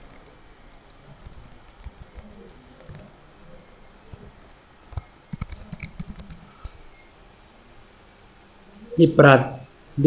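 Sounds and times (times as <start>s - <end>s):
keyboard typing: 0.0s - 6.8s
mouse clicks: 3.7s - 6.8s.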